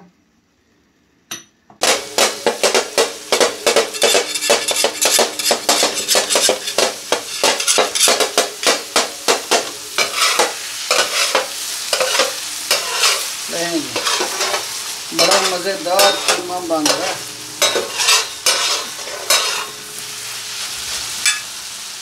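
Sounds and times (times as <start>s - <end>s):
metal spatulas clacking on griddle: 1.3s - 13.2s, 15.2s - 19.8s, 21.2s - 21.5s
meat sizzling on a griddle: 1.8s - 22.0s.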